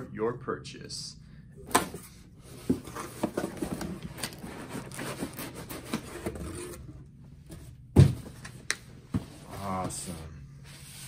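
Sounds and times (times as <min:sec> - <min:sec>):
cardboard scraping and rubbing: 0:02.4 - 0:06.9.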